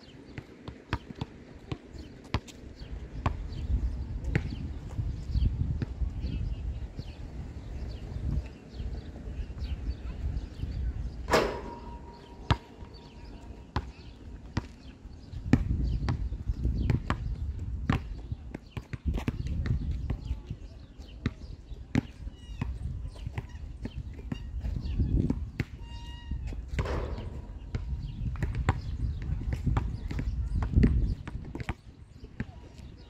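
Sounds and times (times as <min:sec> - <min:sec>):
ball hitting metal rim: 0:11.3 - 0:13.4, 0:26.8 - 0:27.9
basketball bouncing: 0:11.3 - 0:14.0, 0:26.8 - 0:28.9.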